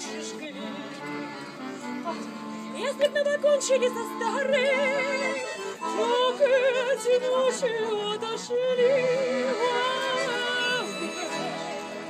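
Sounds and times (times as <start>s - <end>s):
accordion chords: 0.0s - 12.0s
woman singing with vibrato: 2.7s - 11.7s.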